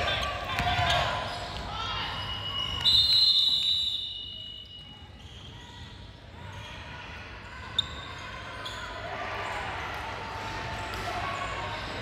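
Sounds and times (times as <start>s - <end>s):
basketball bouncing on court: 0.5s - 1.1s
referee's whistle blast: 2.1s - 5.0s.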